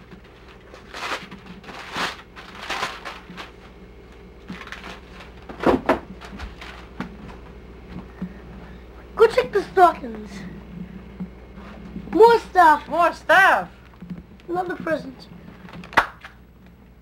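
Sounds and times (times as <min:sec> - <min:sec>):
wrapping paper tearing: 0:00.2 - 0:03.8, 0:04.4 - 0:05.5, 0:06.2 - 0:07.0.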